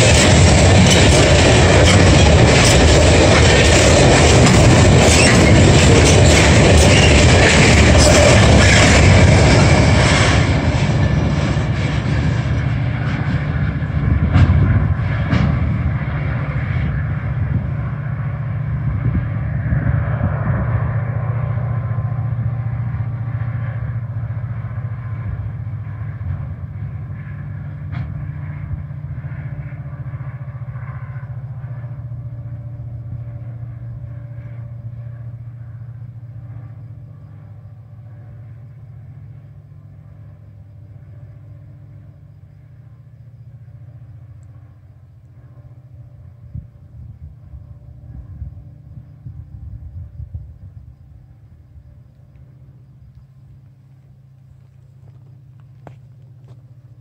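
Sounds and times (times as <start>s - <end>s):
wheels clacking on rails: 0.0s - 30.0s
train rumbling: 0.0s - 57.0s.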